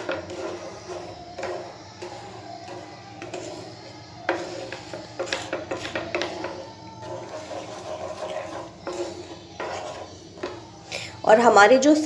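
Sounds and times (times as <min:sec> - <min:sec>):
spatula knocking against pan: 0:00.0 - 0:10.7
spatula scraping pan bottom: 0:00.0 - 0:11.5.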